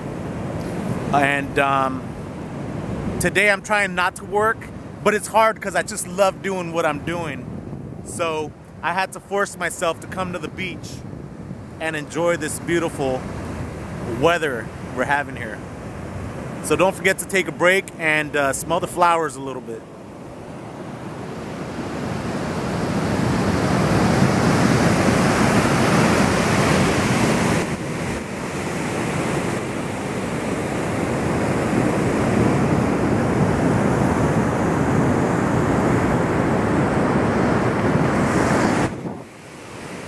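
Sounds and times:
ocean surf breaking on beach: 0:00.0 - 0:40.0
wind buffeting microphone: 0:05.8 - 0:08.8, 0:10.0 - 0:16.8, 0:20.2 - 0:40.0.

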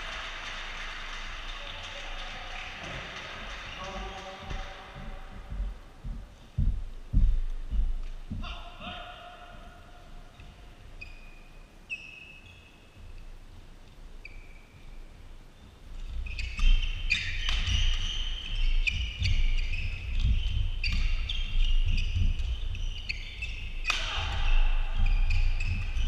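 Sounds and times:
feet thudding: 0:05.0 - 0:08.9
shoes squeaking on court: 0:10.3 - 0:13.3, 0:14.0 - 0:26.0
racket hitting shuttlecock: 0:17.2 - 0:18.2, 0:23.8 - 0:25.8.

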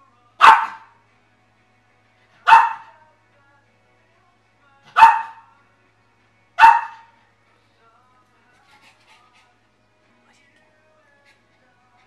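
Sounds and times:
small dog barking: 0:00.4 - 0:00.9, 0:02.4 - 0:02.9, 0:04.9 - 0:05.4, 0:06.6 - 0:07.1.

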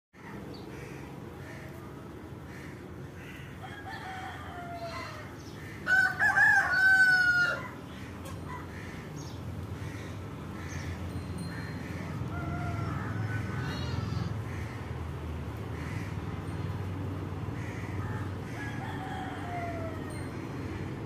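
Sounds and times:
rooster crowing: 0:03.6 - 0:07.9, 0:11.9 - 0:14.2, 0:17.6 - 0:20.6.

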